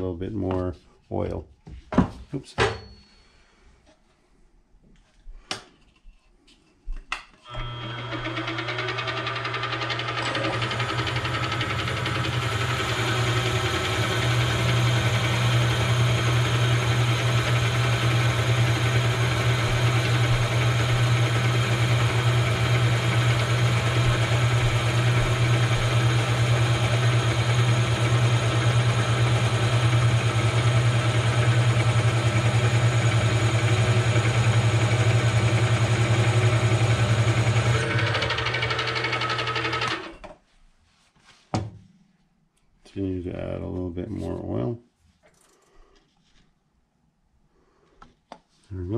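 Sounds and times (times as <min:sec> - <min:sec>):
milling machine spindle humming: 0:07.5 - 0:40.1
drill boring into metal: 0:07.5 - 0:40.2.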